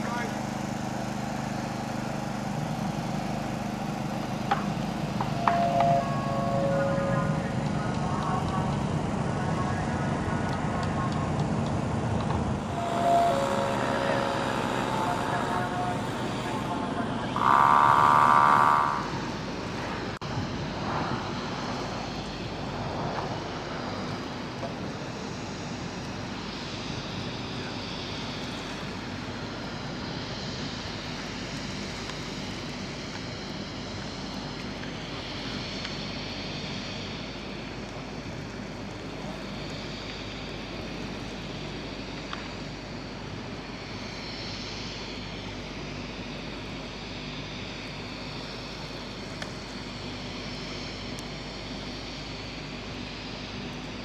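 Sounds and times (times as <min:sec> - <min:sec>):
distant engine hum: 0:00.0 - 0:54.0
loud tone: 0:05.2 - 0:08.7, 0:12.6 - 0:19.4.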